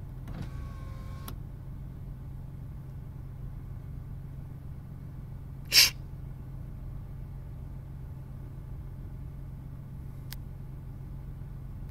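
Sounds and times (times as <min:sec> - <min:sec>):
steady low hum: 0:00.0 - 0:11.9
person sneezing: 0:05.7 - 0:06.0.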